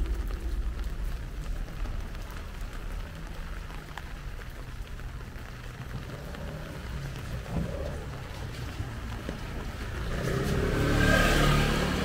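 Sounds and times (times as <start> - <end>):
heavy rain: 0.0 - 12.0
raindrops ticking: 0.0 - 12.0.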